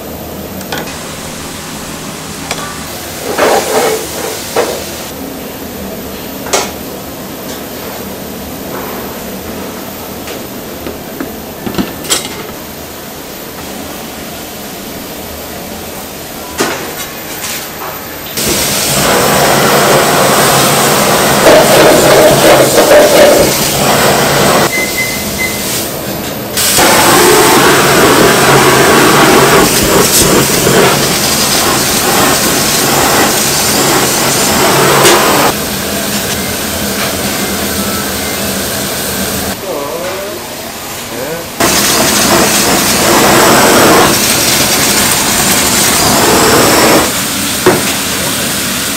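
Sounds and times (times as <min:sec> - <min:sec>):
kitchen background noise: 0:00.6 - 0:19.2, 0:19.9 - 0:27.0, 0:29.4 - 0:48.9
blowtorch flame hissing: 0:03.1 - 0:05.2, 0:18.4 - 0:24.7, 0:26.6 - 0:39.6, 0:41.6 - 0:48.9
fire flare-ups: 0:18.4 - 0:24.7, 0:26.6 - 0:35.6, 0:41.6 - 0:48.9.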